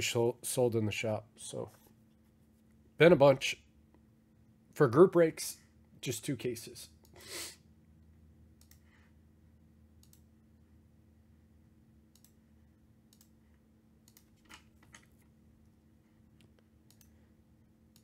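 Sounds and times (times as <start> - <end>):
faint clicks: 8.6 - 8.9, 12.1 - 12.4, 13.1 - 13.4.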